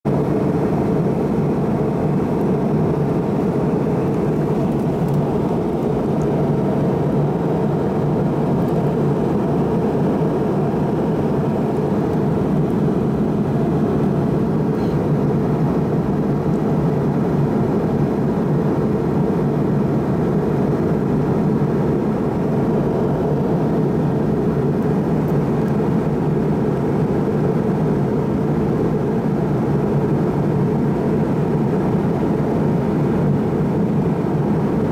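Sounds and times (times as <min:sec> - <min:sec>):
airliner cabin engine rush: 0:00.1 - 0:34.9
faint steady tone: 0:14.7 - 0:15.3.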